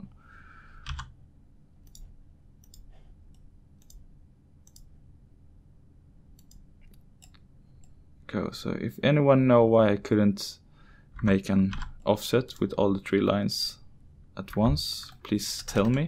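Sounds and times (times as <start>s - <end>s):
faint low hum: 0.0s - 16.0s
computer mouse clicks: 1.8s - 4.0s, 4.6s - 4.9s, 6.4s - 8.0s.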